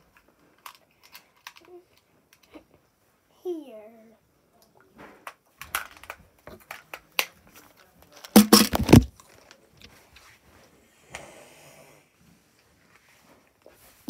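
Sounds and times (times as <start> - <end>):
handling clicks and rustles: 5.6 - 9.9.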